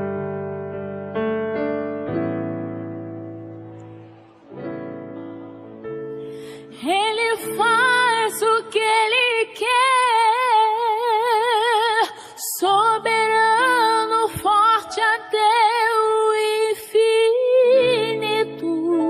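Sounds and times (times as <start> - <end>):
woman singing with vibrato: 6.6 - 19.0.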